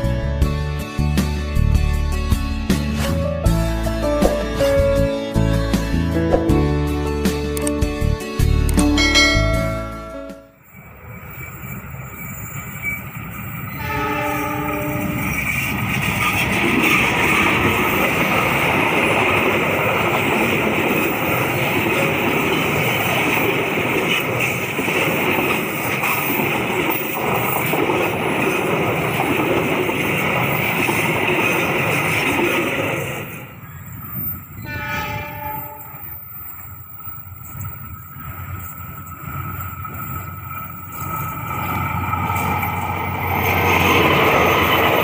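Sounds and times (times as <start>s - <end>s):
train cars rumbling and clattering: 0.0s - 45.0s
high steady ring: 9.0s - 12.7s
train horn blast: 13.7s - 15.4s, 34.6s - 36.0s.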